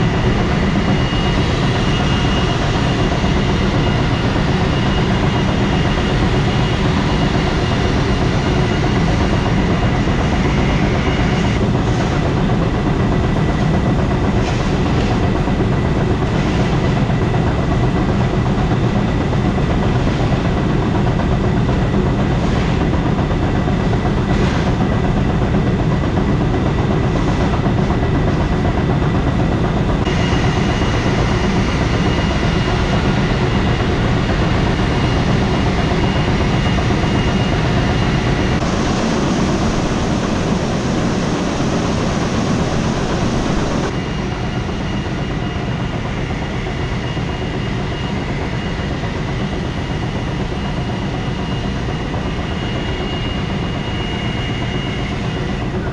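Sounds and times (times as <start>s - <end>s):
thin high whine: 30.0s - 55.9s.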